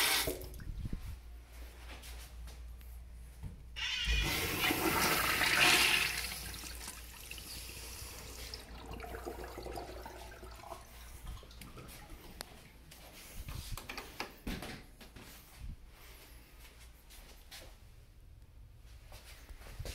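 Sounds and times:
urinal flushing: 0:00.0 - 0:00.6, 0:03.8 - 0:13.1.

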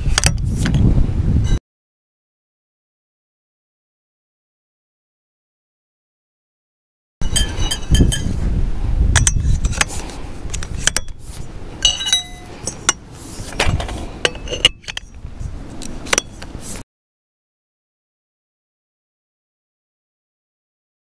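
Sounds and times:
light metallic clinks and knocks: 0:11.8 - 0:13.0.

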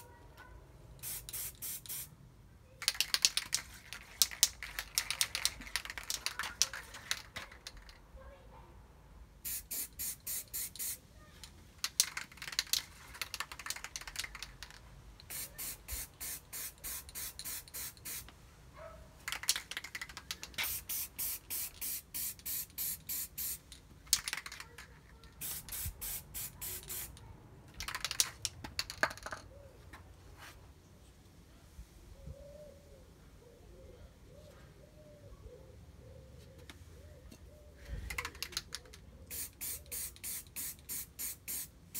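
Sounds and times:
spray can clicks and rattles: 0:01.0 - 0:02.1, 0:02.8 - 0:08.0, 0:09.4 - 0:18.3, 0:19.2 - 0:29.4, 0:38.1 - 0:41.9
spray can spraying bursts: 0:01.0 - 0:02.1, 0:09.4 - 0:11.0, 0:15.2 - 0:18.3, 0:19.3 - 0:24.6, 0:25.4 - 0:27.2, 0:39.3 - 0:41.9.

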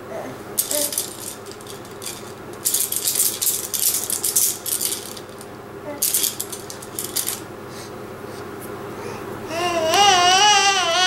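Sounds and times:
toy keys jangling: 0:00.6 - 0:07.4.

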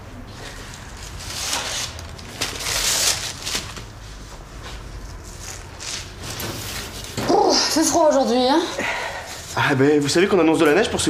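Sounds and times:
paper bag rustling: 0:00.4 - 0:04.3.

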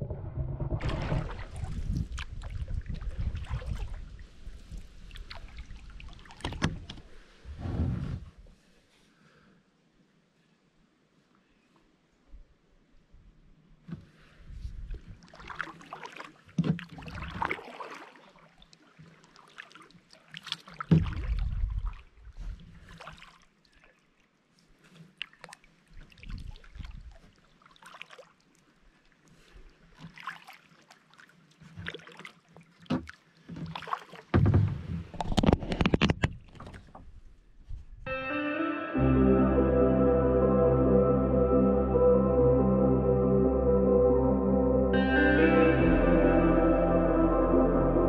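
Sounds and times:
paddle splashing in water: 0:00.0 - 0:07.3, 0:15.0 - 0:24.1, 0:24.8 - 0:28.5, 0:29.3 - 0:37.0.

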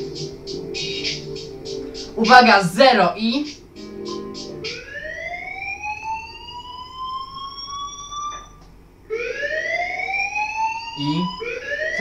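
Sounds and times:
siren-like alarm wail: 0:04.6 - 0:12.0.

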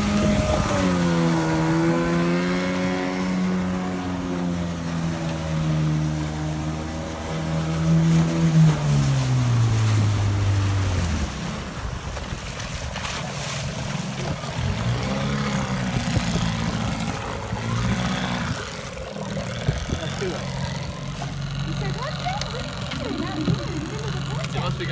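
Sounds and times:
wind on microphone: 0:00.0 - 0:03.8, 0:13.7 - 0:21.1
outboard motor running: 0:00.0 - 0:24.9
water splashing: 0:00.0 - 0:24.9.

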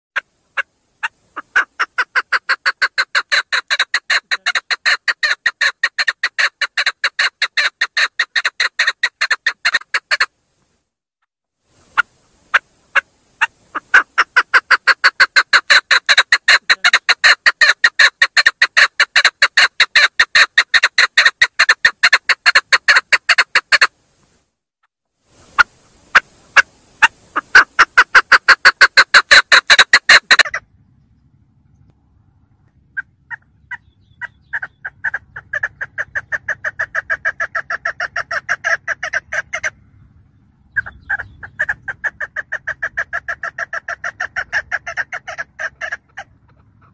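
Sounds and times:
partridge rapid chuck calls: 0:00.2 - 0:10.3, 0:11.9 - 0:23.9, 0:25.5 - 0:30.7, 0:32.9 - 0:39.8, 0:40.7 - 0:46.9
low hum: 0:30.5 - 0:35.0.

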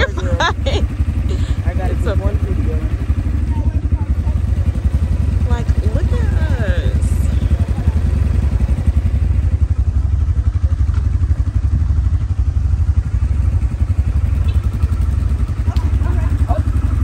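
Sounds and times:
atv engine running: 0:00.0 - 0:17.0.

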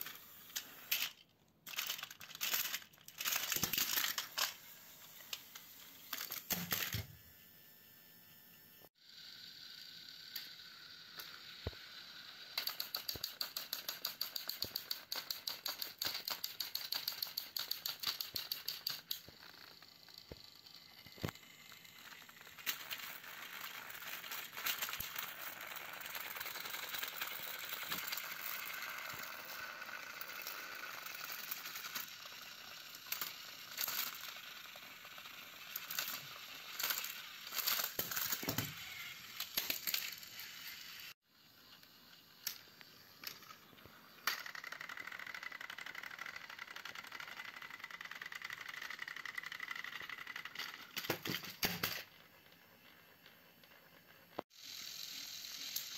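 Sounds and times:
toy train rattling clicks: 0:00.0 - 0:07.0, 0:09.2 - 0:55.9
toy train motor whir: 0:00.0 - 0:55.9
plastic toys clattering falling: 0:00.6 - 0:04.6, 0:06.1 - 0:07.1, 0:50.4 - 0:52.2.

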